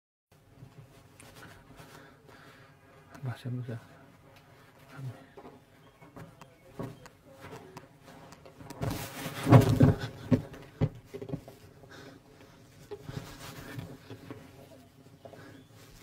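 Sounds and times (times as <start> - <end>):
clothing rustling: 0.4 - 3.1, 7.2 - 16.0.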